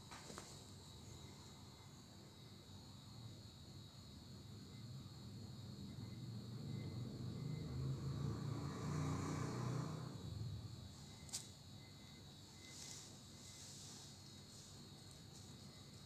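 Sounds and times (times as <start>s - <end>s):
faint high-pitched hiss: 10.9s - 16.0s.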